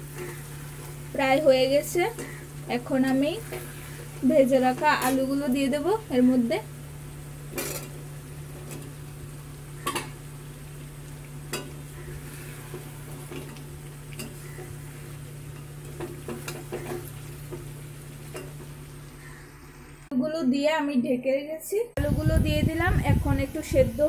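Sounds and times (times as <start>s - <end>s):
curry sizzling: 0.0s - 20.1s, 22.2s - 24.0s.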